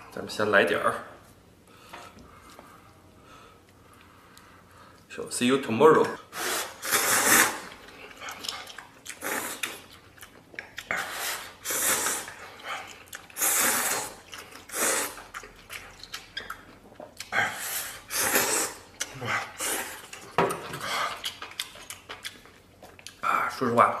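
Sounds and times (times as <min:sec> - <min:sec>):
person slurping noodles: 0:06.3 - 0:07.7, 0:09.1 - 0:09.8, 0:10.9 - 0:12.4, 0:13.3 - 0:15.3, 0:17.4 - 0:20.1.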